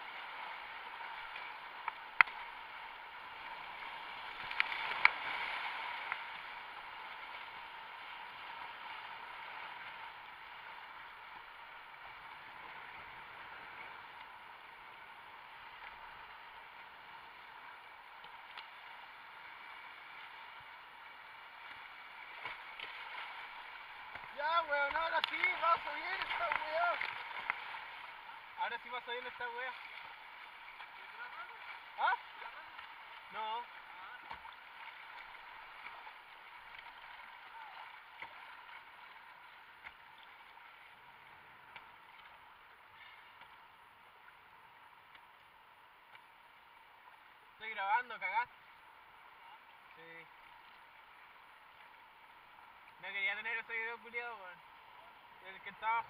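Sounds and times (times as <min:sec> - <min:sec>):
river water rushing: 0:00.0 - 0:56.0
whitewater rapids rushing: 0:22.2 - 0:39.0.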